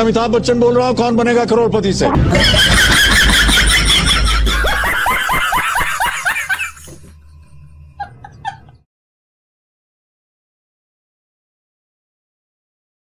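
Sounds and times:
person laughing: 0:02.2 - 0:08.8.

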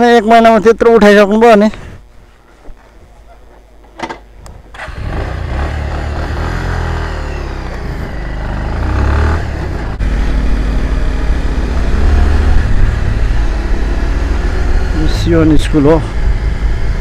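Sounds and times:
motorcycle engine: 0:04.0 - 0:17.0.

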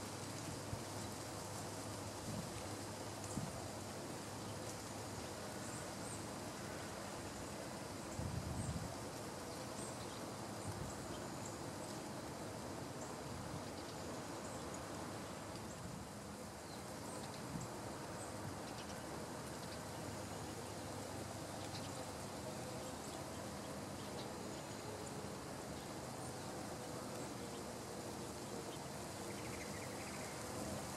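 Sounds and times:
steady hiss: 0:00.0 - 0:30.9
small birds chipping: 0:00.1 - 0:30.9.

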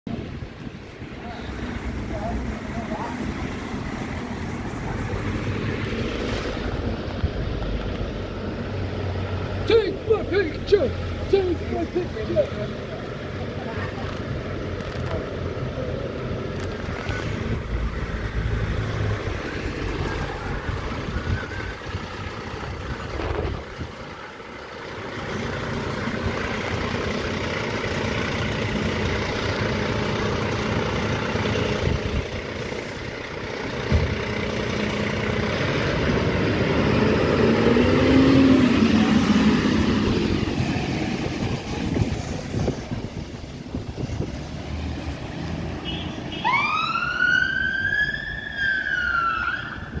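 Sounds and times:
fire engine diesel engine running: 0:00.1 - 0:48.0
siren wailing: 0:46.4 - 0:50.0.

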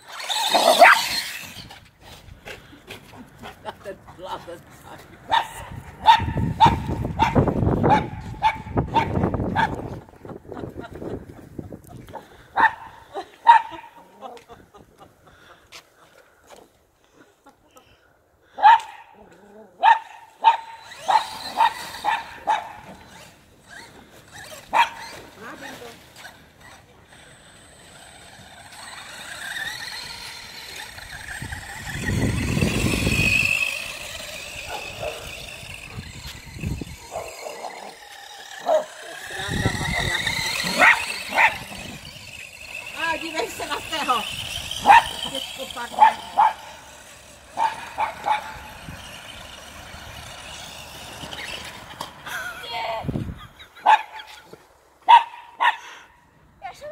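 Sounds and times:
rc car motor whining: 0:00.0 - 0:02.7, 0:05.5 - 0:10.8, 0:20.6 - 0:54.5
dog barking: 0:00.8 - 0:01.1, 0:05.3 - 0:09.7, 0:12.6 - 0:12.9, 0:13.5 - 0:13.8, 0:18.6 - 0:19.1, 0:19.8 - 0:22.8, 0:24.7 - 0:25.0, 0:38.6 - 0:38.9, 0:40.8 - 0:41.6, 0:44.8 - 0:45.1, 0:46.0 - 0:46.7, 0:47.6 - 0:48.6, 0:53.8 - 0:54.3, 0:55.1 - 0:55.9.

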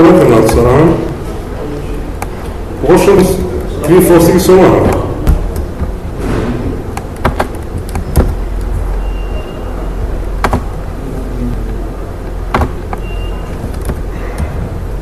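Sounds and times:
keyboard and mouse clicks: 0:06.9 - 0:09.4, 0:10.4 - 0:10.8, 0:12.5 - 0:14.7.

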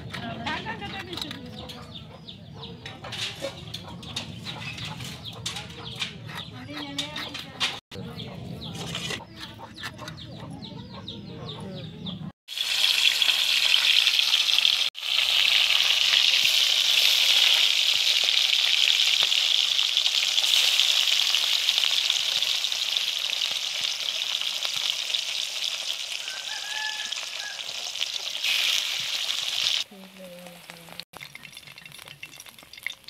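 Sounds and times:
fish sizzling in hot oil: 0:12.5 - 0:33.0.

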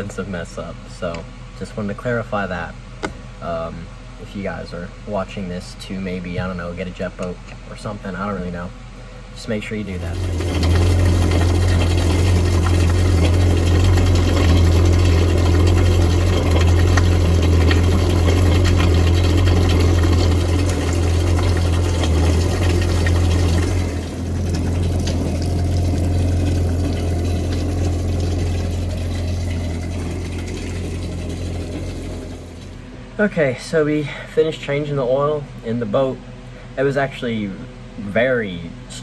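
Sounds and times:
boat engine idling: 0:09.9 - 0:32.9
water splashing on pavement: 0:10.1 - 0:32.8.

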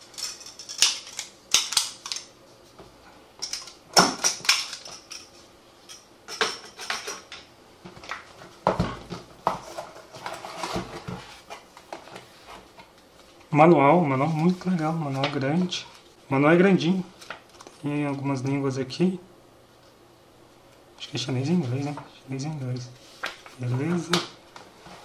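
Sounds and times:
cardboard scraping and rustling: 0:09.0 - 0:12.8.

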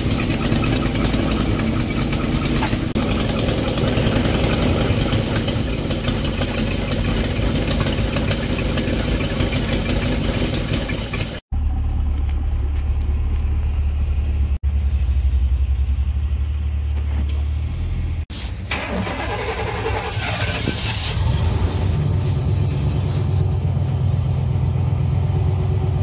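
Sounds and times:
car engine idling fast: 0:00.0 - 0:16.8
deep rumbling engine idling: 0:00.0 - 0:26.0.

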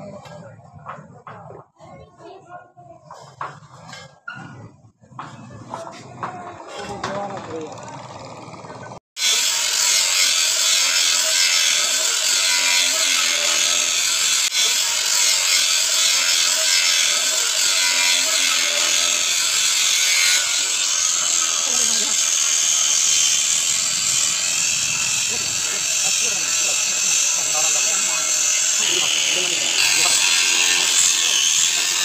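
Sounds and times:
angle grinder cutting steel pipe: 0:09.2 - 0:32.0.

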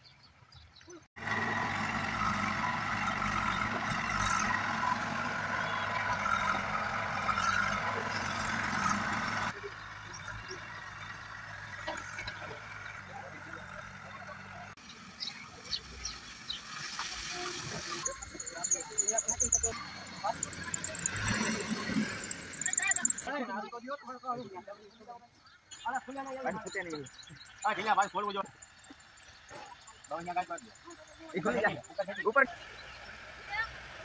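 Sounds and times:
diesel engine running: 0:01.2 - 0:23.3.

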